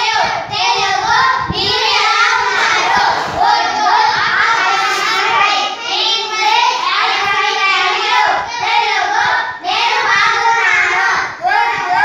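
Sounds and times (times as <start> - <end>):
children chanting together: 0.0 - 12.0.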